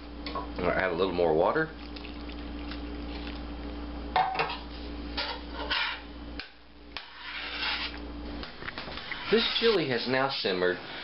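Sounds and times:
steady low hum: 0.0 - 11.0
metal spoon scraping a pot: 5.2 - 6.0, 7.0 - 8.0, 9.0 - 9.8.

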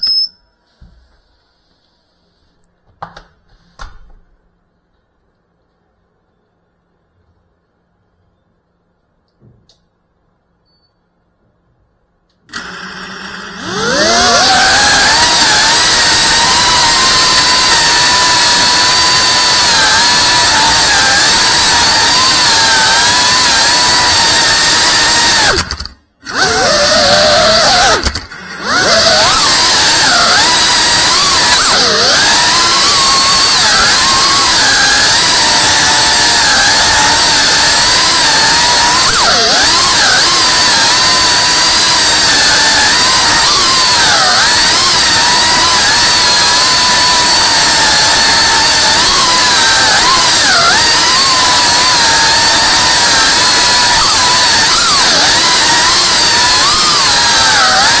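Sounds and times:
drone motors whining: 13.5 - 58.0.

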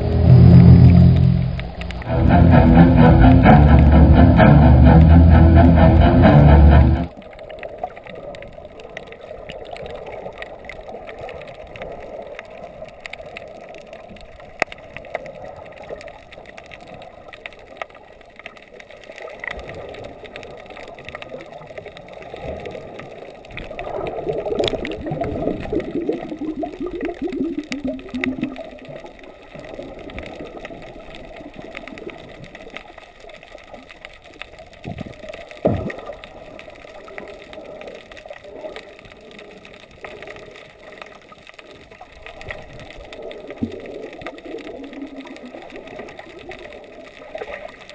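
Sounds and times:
muffled underwater water noise: 0.0 - 47.9
bubbling: 19.6 - 34.0, 34.7 - 47.9.

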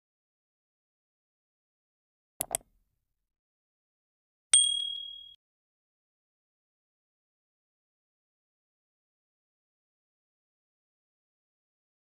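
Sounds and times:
mouse double click: 2.4 - 2.7.

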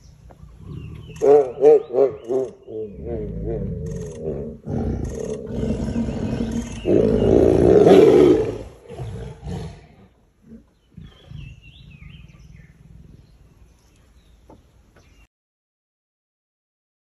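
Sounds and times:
bird calling: 0.0 - 9.7, 10.5 - 15.3
big cat roaring: 0.6 - 13.5.

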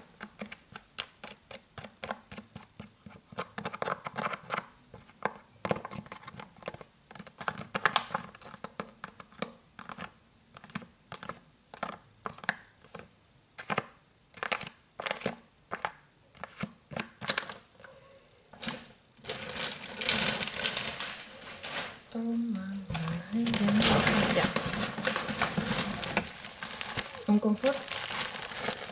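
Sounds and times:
packaging rustling: 18.6 - 22.1, 22.9 - 28.9
fingernails scratching plastic pouch: 19.2 - 21.8, 22.9 - 28.9.

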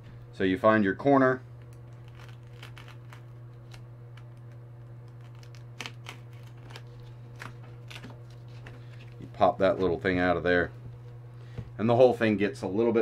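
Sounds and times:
steady low hum: 0.0 - 13.0
foam scratching and crinkling: 1.9 - 3.8.

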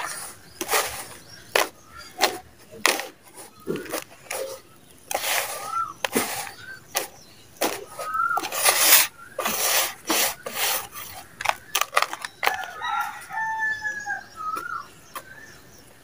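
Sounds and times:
hands scraping through gritty soil: 0.0 - 13.6
chicken calls: 0.0 - 15.9
rooster crowing: 12.4 - 14.9.

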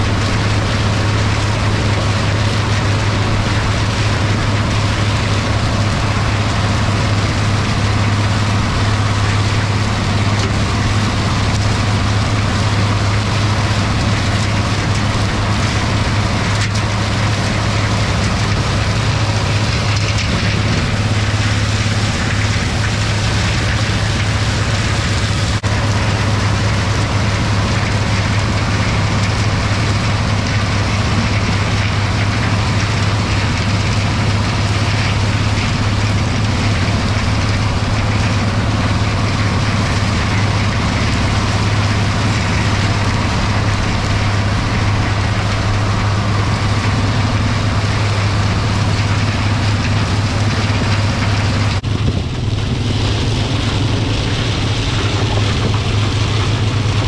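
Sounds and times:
tractor diesel engine droning: 0.0 - 57.0
stalk chopper whirring: 32.8 - 57.0.

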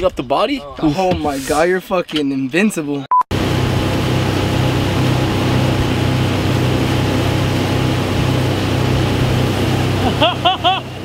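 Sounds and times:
motorboat engine hum: 3.3 - 11.0
wind and water rushing: 3.4 - 11.0.

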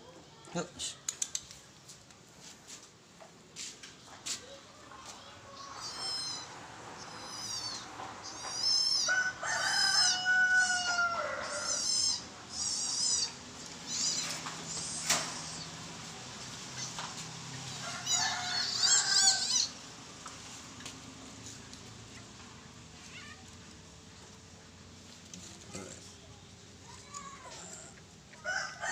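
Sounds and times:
animal kits squealing chirps: 5.5 - 19.8.

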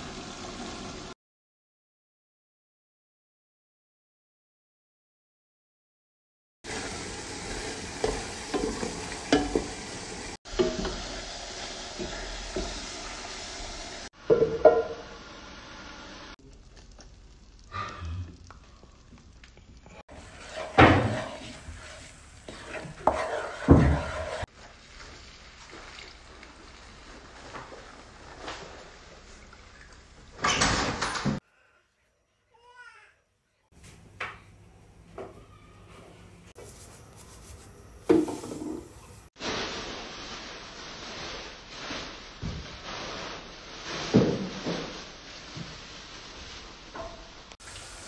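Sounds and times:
butter sizzling: 6.7 - 30.4, 42.9 - 48.0
spatula scraping frying pan: 20.1 - 24.5.

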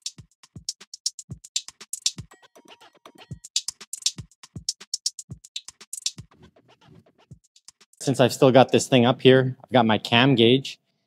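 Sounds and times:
hi-hat ticks: 0.0 - 2.4, 3.3 - 6.4, 7.4 - 8.1.

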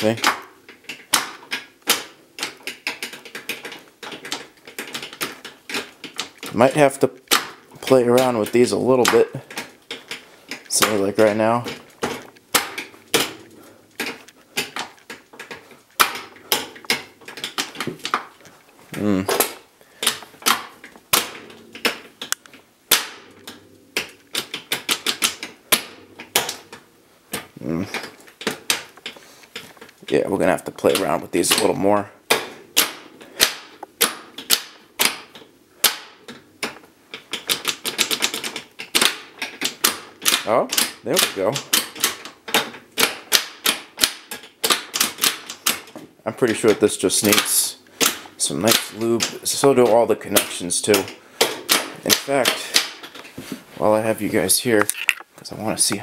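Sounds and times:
sharp metallic clicks: 0.0 - 18.5, 54.7 - 56.0
metal linkages clicking and clunking: 0.0 - 56.0.

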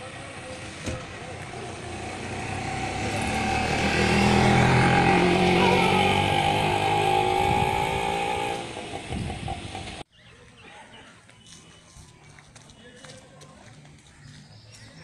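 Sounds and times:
vehicle engine passing by: 0.1 - 10.0.

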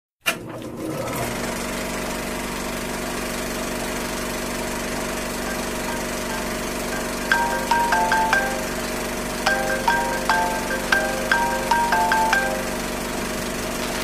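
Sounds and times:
machine humming: 3.7 - 14.0.

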